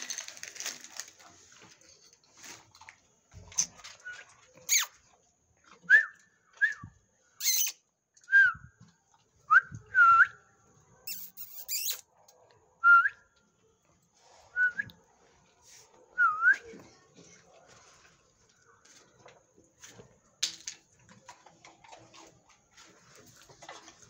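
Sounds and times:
dog whining: 11.1s - 12.0s.

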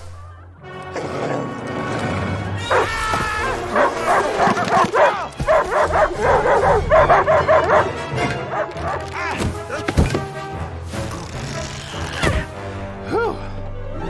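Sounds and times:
background music: 0.0s - 14.0s
cartoon dog barking: 3.7s - 7.9s.

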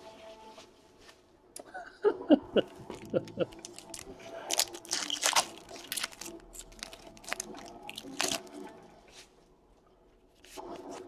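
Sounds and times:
foil wrapper crinkling: 3.0s - 8.6s.

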